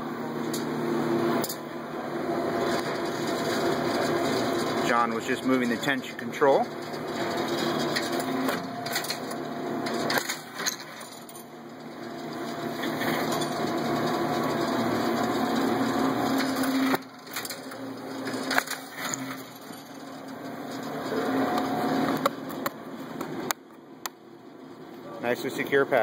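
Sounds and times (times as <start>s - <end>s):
motor humming: 0.5s - 23.6s
strapping machine clacks and snaps: 6.6s - 14.6s, 15.2s - 22.8s.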